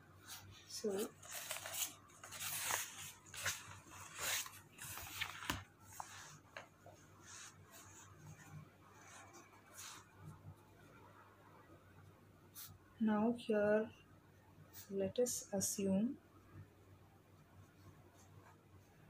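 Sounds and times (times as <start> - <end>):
paper rustling: 0.3 - 8.1.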